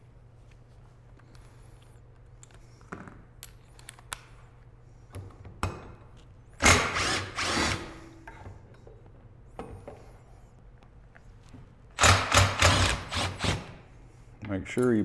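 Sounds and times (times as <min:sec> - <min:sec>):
cordless driver running: 0:06.6 - 0:07.9, 0:12.0 - 0:13.7.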